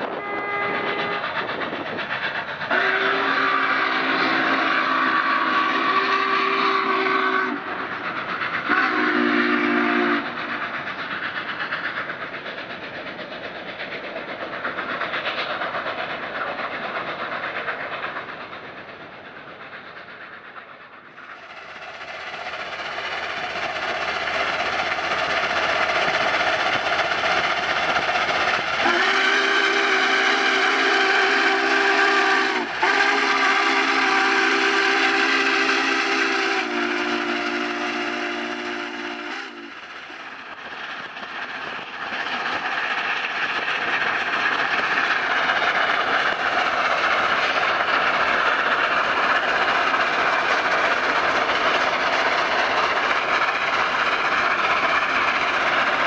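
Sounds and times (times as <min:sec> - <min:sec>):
steam locomotive passing: 0:00.0 - 0:56.0
steam whistle blasts: 0:00.1 - 0:01.2, 0:02.7 - 0:07.7, 0:08.7 - 0:10.4, 0:28.8 - 0:39.8.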